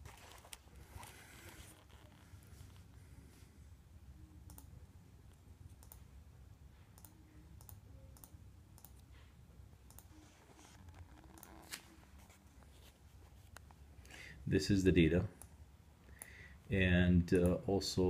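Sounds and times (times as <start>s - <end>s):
low room hum: 0.0s - 18.0s
computer mouse clicks: 4.5s - 4.7s, 5.7s - 6.0s, 7.0s - 9.1s, 9.9s - 10.1s, 11.3s - 11.6s.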